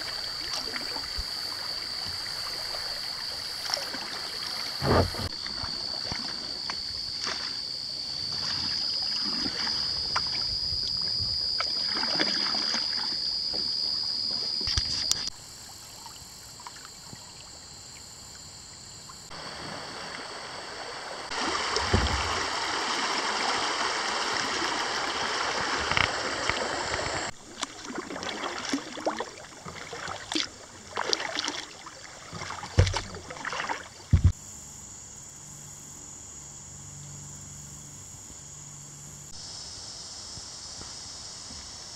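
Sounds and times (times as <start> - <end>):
kayak paddles splashing: 0.0 - 18.3, 19.2 - 34.4
high insect buzz: 0.0 - 27.7
river current rushing: 19.3 - 29.0.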